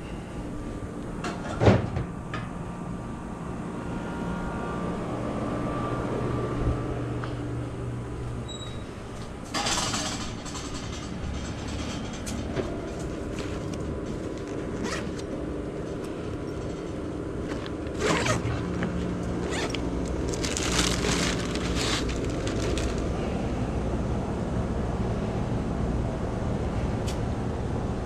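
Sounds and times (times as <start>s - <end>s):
rustling and scraping: 9.2s - 23.3s
car engine and road rumble: 12.3s - 24.0s.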